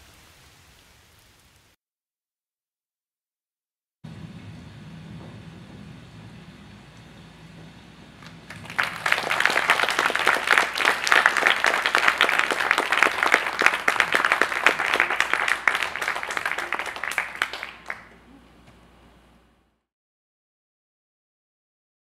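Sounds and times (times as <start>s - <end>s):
audience applauding: 8.2s - 18.4s.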